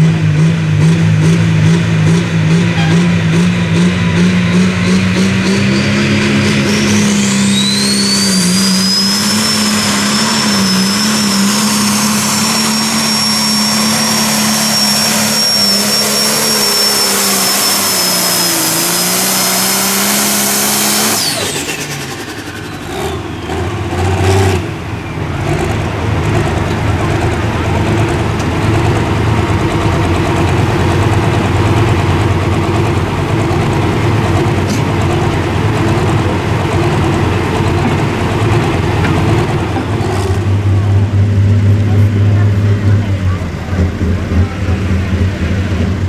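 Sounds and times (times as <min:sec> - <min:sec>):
diesel engine at full throttle: 0:00.0 - 0:46.0
turbo whistle: 0:04.8 - 0:19.7
engine idling unevenly: 0:21.1 - 0:46.0.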